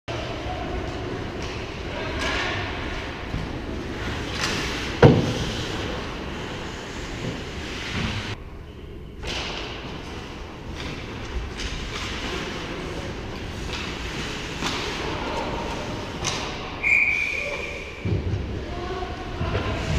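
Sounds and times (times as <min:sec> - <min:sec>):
low rink rumble: 0:00.1 - 0:08.4, 0:09.4 - 0:16.8, 0:18.0 - 0:19.9
skates cutting ice: 0:04.0 - 0:08.4.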